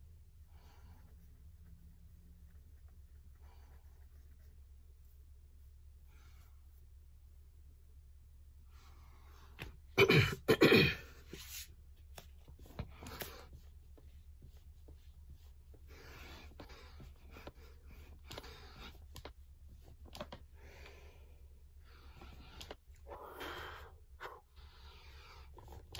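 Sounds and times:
man sneezing: 10.0 - 11.1.

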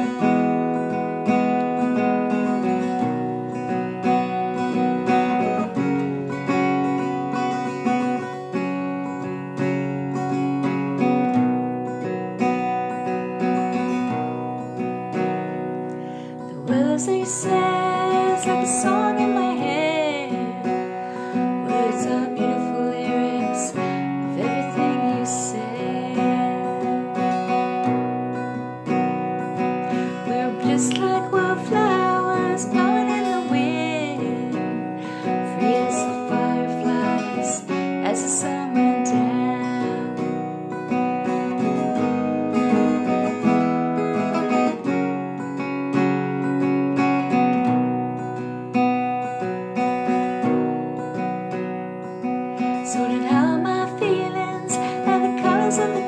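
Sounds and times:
acoustic guitar chords: 0.0 - 56.0
woman singing with vibrato: 16.5 - 27.4, 30.1 - 40.5, 52.8 - 56.0.

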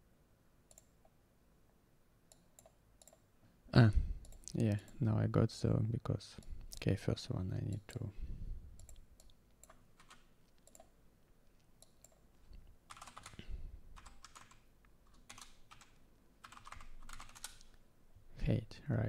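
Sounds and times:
faint keyboard typing: 0.6 - 1.2, 2.3 - 3.3, 4.2 - 5.1, 8.7 - 17.8.

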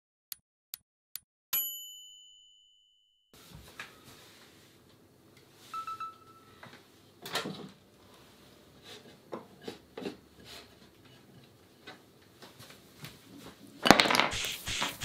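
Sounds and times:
microwave beep: 5.7 - 6.6.

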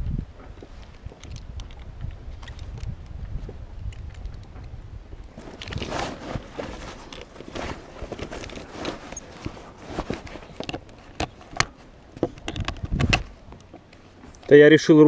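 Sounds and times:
rope and sailcloth rustling: 5.3 - 15.0.

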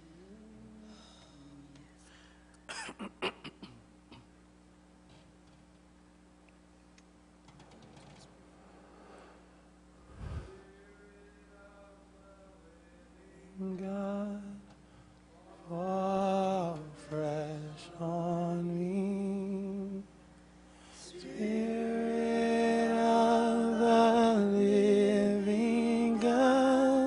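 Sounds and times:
person singing slow worship song: 0.0 - 2.7, 10.0 - 27.0.

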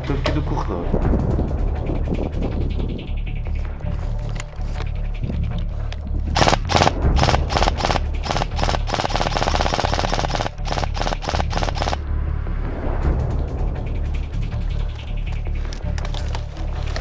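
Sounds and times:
airsoft rifle firing bursts: 6.4 - 12.0.

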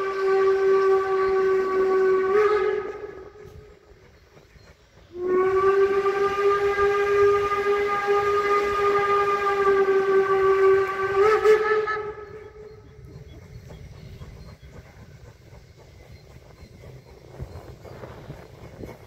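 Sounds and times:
steam locomotive whistle: 0.0 - 3.9, 5.0 - 14.8.

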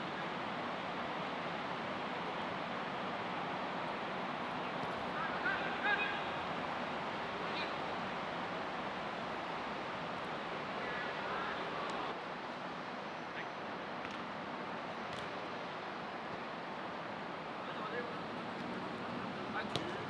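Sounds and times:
outdoor background noise: 0.0 - 20.0
players shouting: 5.1 - 6.6.

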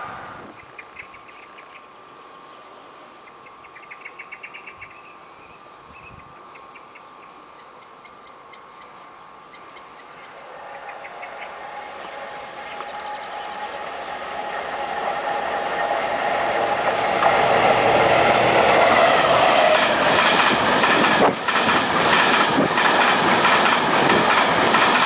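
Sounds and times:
diesel locomotive approaching: 0.0 - 5.5, 9.4 - 25.0
small birds chirping: 0.6 - 13.9.

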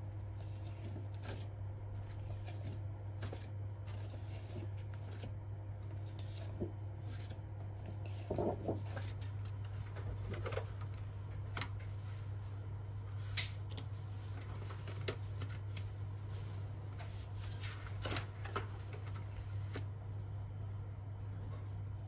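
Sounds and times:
low room tone hum: 0.0 - 22.0.

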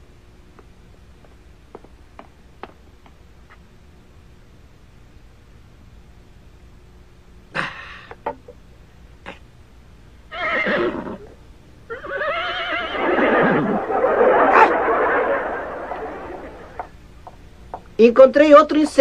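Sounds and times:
dense noisy background: 12.6 - 19.0.

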